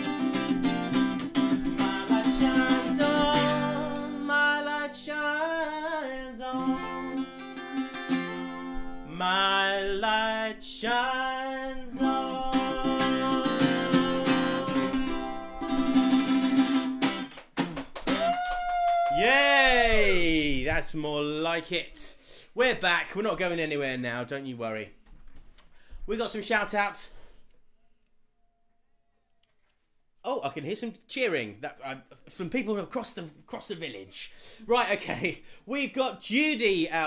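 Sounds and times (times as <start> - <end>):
strummed acoustic guitar: 0.0 - 4.3, 6.4 - 9.1, 11.9 - 18.2
man singing: 1.6 - 7.3, 9.0 - 15.4.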